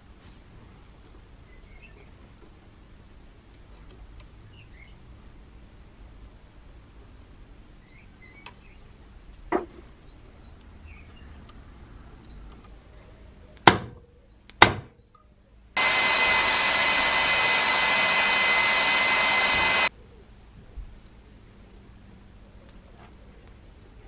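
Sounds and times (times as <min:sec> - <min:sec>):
hammer striking metal punch: 0:14.6 - 0:14.9
electric drill running: 0:15.8 - 0:19.9.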